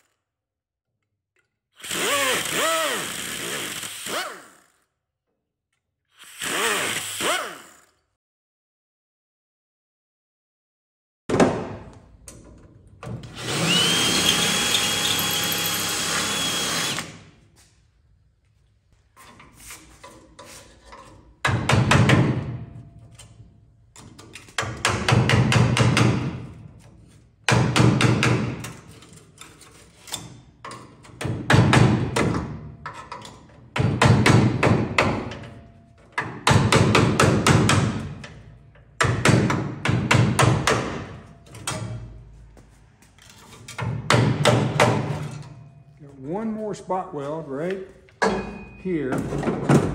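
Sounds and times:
power tool whining: 1.8s - 4.8s, 6.2s - 7.9s, 13.2s - 17.2s.

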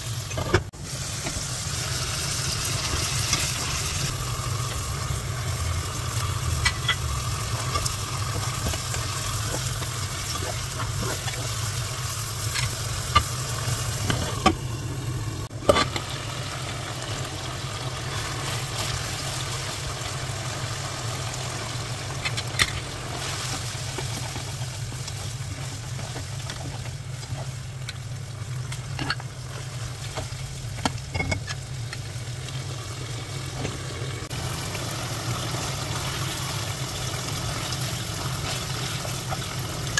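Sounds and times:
meat sizzling in oil: 0.0s - 39.9s
low hum: 0.3s - 18.7s.

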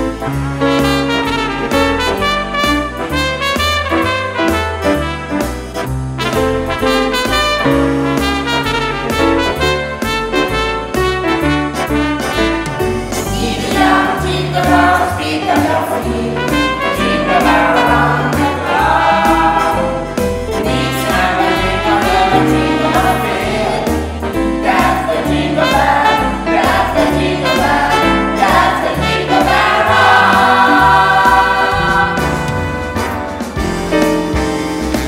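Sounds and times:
piano accompaniment: 0.0s - 35.0s
steady bass line: 0.0s - 35.0s
voices singing together: 13.2s - 32.9s.

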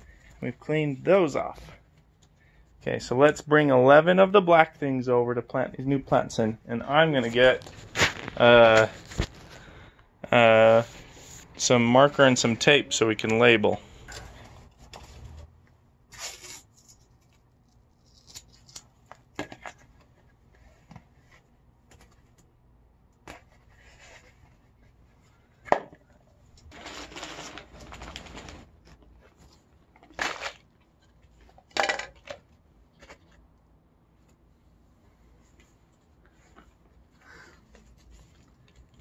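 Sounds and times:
masking tape pulled and torn: 16.1s - 19.2s.

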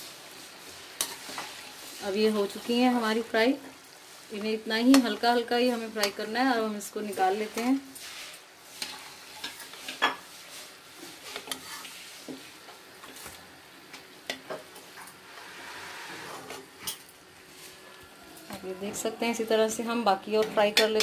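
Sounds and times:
oil sizzling in deep-frying: 0.0s - 21.0s
metal spoon scraping pan: 1.0s - 1.7s, 4.8s - 6.3s, 7.0s - 12.1s.

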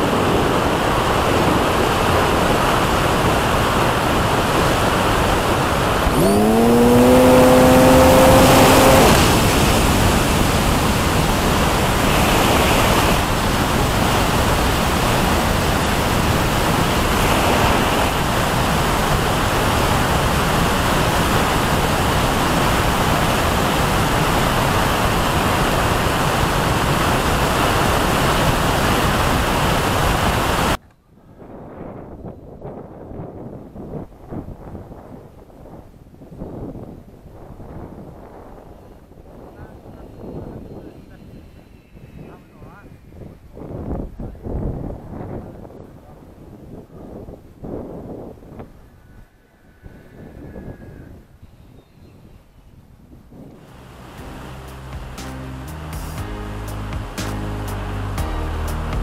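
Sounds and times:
rushing airflow over microphone: 0.0s - 30.8s, 31.4s - 56.3s
humming tone rising in pitch: 6.0s - 10.3s, 53.7s - 59.0s.

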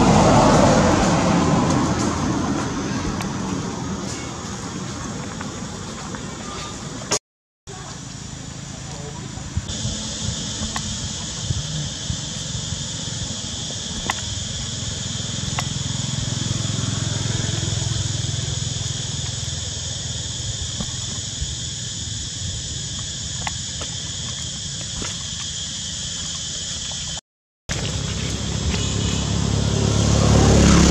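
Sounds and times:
high-pitched insect drone: 8.6s - 30.9s.

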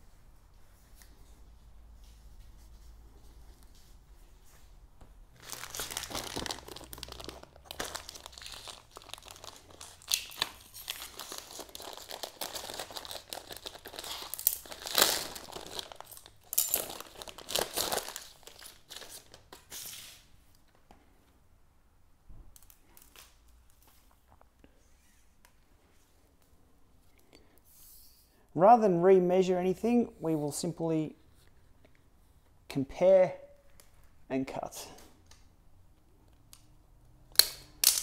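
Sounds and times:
plastic packaging crinkling: 5.4s - 20.2s.

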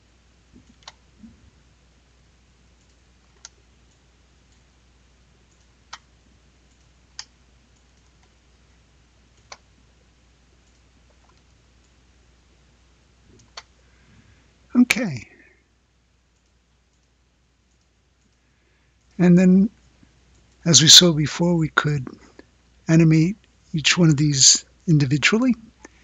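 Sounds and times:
faint steady hum: 0.0s - 26.0s
computer mouse clicking: 0.6s - 1.0s, 2.8s - 4.7s, 5.5s - 6.1s, 6.7s - 8.4s, 9.3s - 9.7s, 10.6s - 12.0s, 13.3s - 13.8s, 16.3s - 18.4s
faint ticks: 5.5s - 8.4s.

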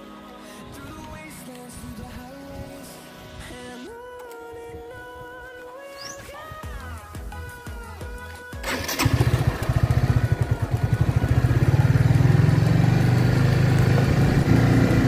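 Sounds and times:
motorcycle engine running: 8.6s - 15.0s.

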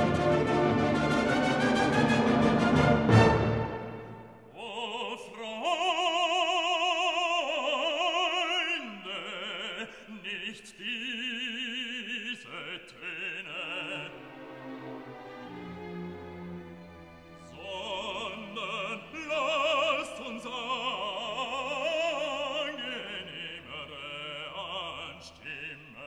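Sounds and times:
loud orchestral chord: 0.0s - 4.4s
soft orchestral accompaniment: 0.0s - 4.5s, 13.0s - 25.8s
operatic singing with vibrato: 0.0s - 26.0s.

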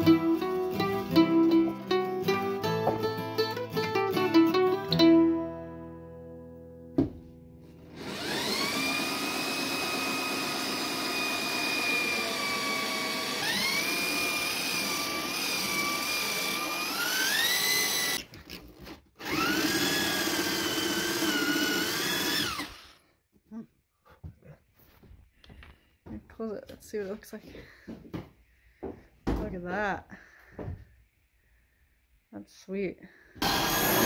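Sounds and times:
electric drill whining: 7.9s - 23.0s, 33.4s - 34.0s.

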